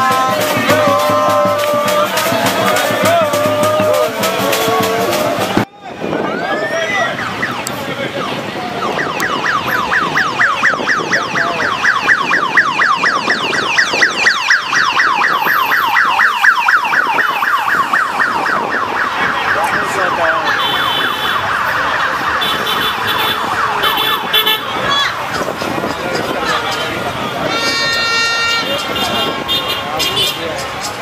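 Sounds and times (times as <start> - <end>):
street and traffic noise: 0.0 - 31.0
electronic siren yelping: 6.3 - 24.3.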